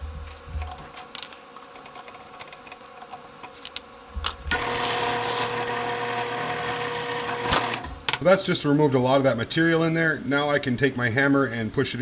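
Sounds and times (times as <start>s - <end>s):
drill press motor whining: 4.5s - 8.0s.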